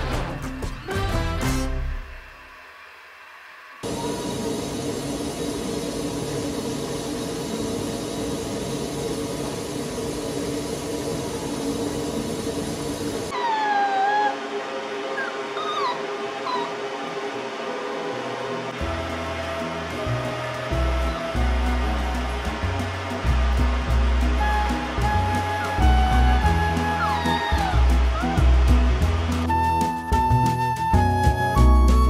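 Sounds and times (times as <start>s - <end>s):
small dog whining: 13.3s - 14.4s, 15.2s - 16.8s, 26.8s - 28.4s
rushing noise with low hum: 14.1s - 29.6s.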